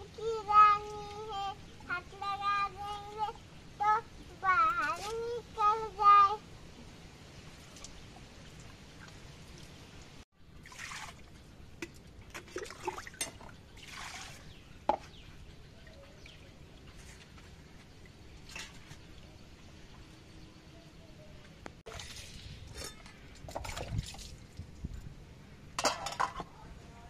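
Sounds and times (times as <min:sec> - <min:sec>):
water splashing and trickling: 0:00.0 - 0:20.6, 0:21.8 - 0:25.2
water scooped and poured: 0:10.6 - 0:11.3, 0:21.9 - 0:24.4.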